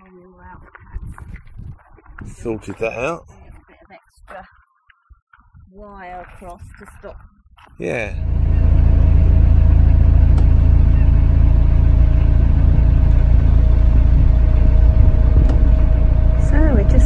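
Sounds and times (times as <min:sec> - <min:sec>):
boat diesel engine running: 0:07.9 - 0:17.0.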